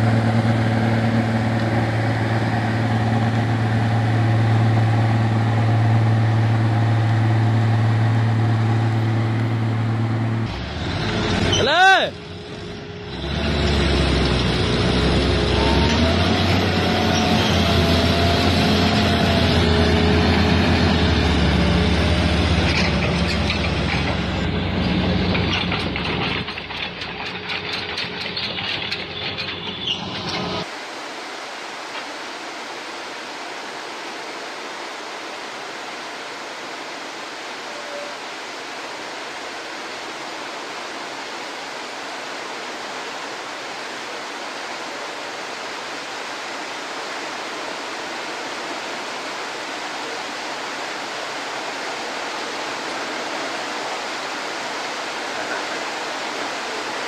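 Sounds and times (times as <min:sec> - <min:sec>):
diesel truck engine under load: 0:00.0 - 0:30.7
steady hiss: 0:30.6 - 0:57.0.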